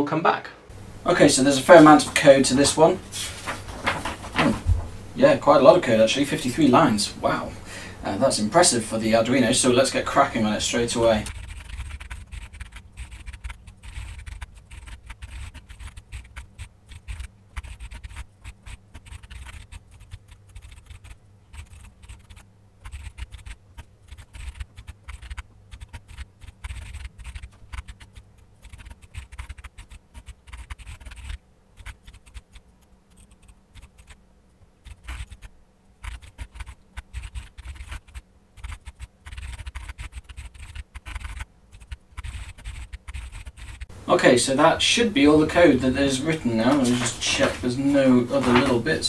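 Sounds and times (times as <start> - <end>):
keyboard typing: 11.2 - 34.2, 34.8 - 43.9.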